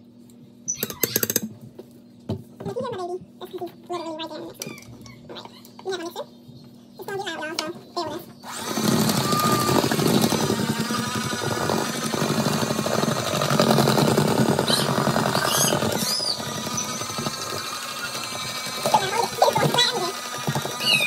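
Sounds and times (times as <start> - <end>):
electric hand mixer whirring: 8.4 - 21.0.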